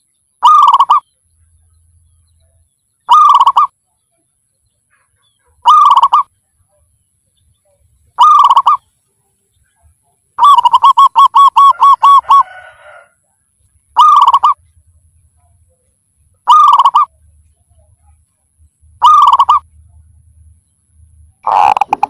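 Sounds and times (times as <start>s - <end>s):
dove cooing: 0.4s - 1.0s, 3.1s - 3.8s, 5.6s - 6.3s, 8.2s - 8.9s, 10.4s - 13.0s, 13.9s - 14.6s, 16.4s - 18.2s, 18.9s - 19.7s, 21.4s - 22.0s.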